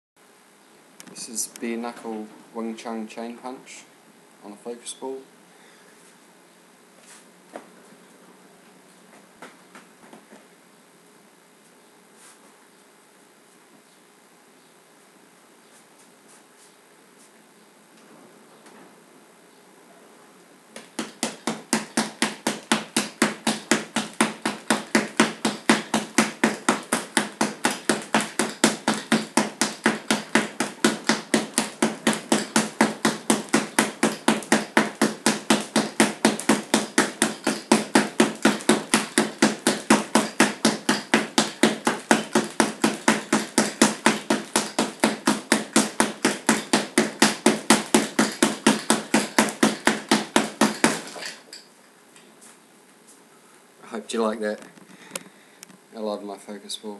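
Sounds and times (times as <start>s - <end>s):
fists slapping a focus ball: 20.8s - 51.4s.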